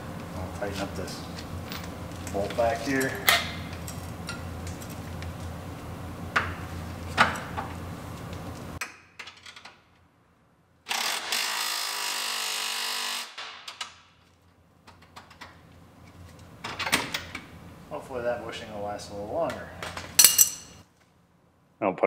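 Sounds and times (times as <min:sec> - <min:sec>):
low background hum: 0:00.0 - 0:10.9, 0:14.1 - 0:22.0
cordless impact wrench running: 0:10.9 - 0:13.4.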